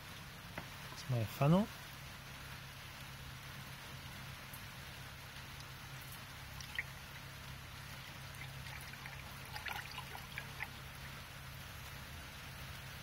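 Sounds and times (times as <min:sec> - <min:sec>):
ticks and drips: 0:00.0 - 0:13.0
liquid trickling through funnel: 0:05.5 - 0:11.9.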